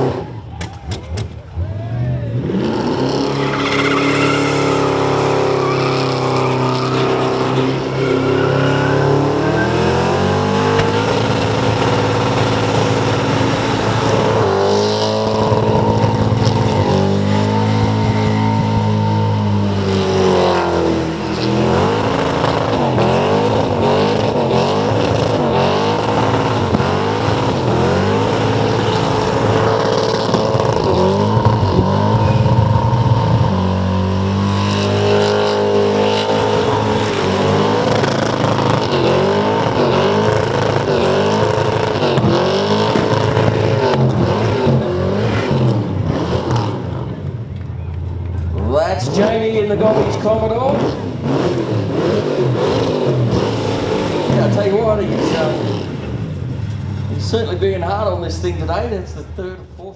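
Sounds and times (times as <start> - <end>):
car engine at high revs: 0.0 - 0.5, 1.2 - 59.9.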